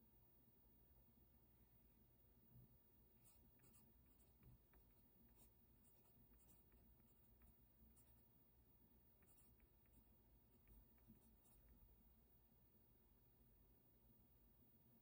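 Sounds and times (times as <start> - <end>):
pen scratching on paper: 3.2 - 11.9.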